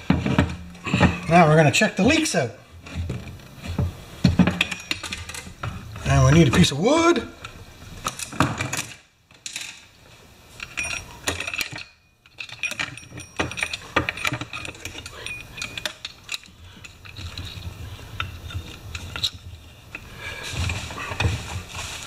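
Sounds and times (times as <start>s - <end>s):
saw chain clinking and rattling: 4.6s - 6.7s, 10.5s - 19.6s.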